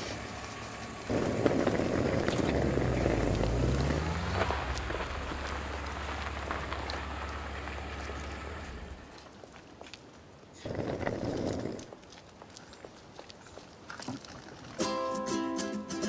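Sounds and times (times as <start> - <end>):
low hum: 0.0 - 9.2
suitcase wheels rolling on gravel: 0.0 - 15.0.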